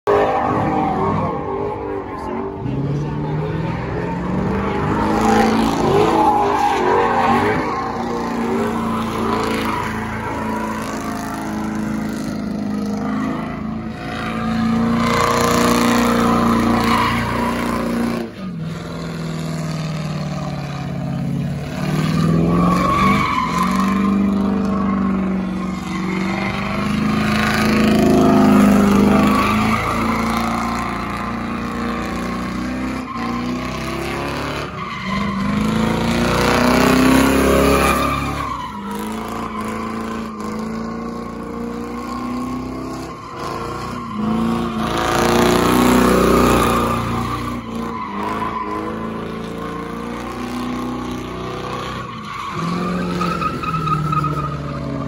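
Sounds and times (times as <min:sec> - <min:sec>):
car engine revving: 0:00.0 - 0:55.0
tires squealing on asphalt: 0:00.0 - 0:55.0.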